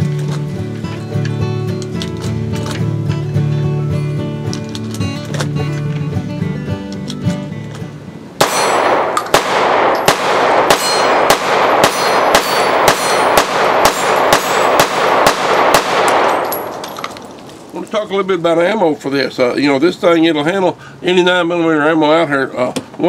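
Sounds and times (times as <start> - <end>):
background music: 0.0 - 9.0
pistol shots with ringing tail: 8.4 - 17.4.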